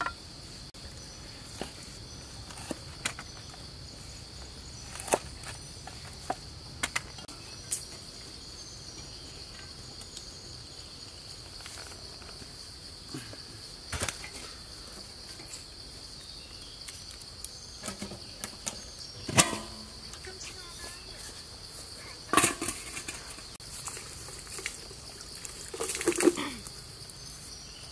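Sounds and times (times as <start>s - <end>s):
insects buzzing: 0.0s - 27.9s
pot lid clanking on pot: 19.3s - 19.9s.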